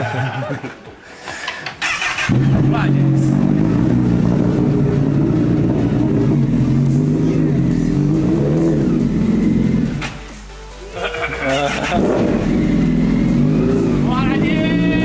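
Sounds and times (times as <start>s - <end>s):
motorcycle engine running: 1.9s - 10.0s, 11.6s - 15.0s.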